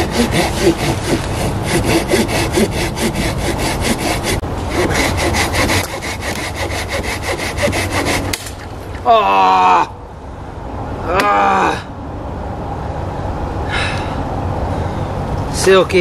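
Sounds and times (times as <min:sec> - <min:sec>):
hand saw cutting log: 0:00.0 - 0:08.6.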